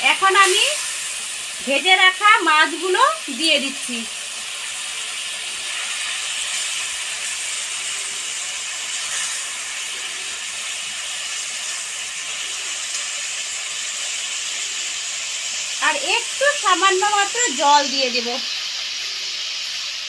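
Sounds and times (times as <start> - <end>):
curry sizzling in metal pan: 0.0 - 20.0.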